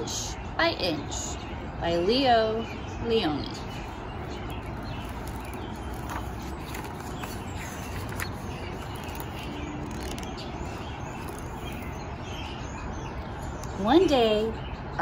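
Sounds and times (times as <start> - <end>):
low rumble of outdoor air: 0.0 - 15.0
small birds chirping: 0.0 - 15.0
book pages turning: 4.3 - 12.1.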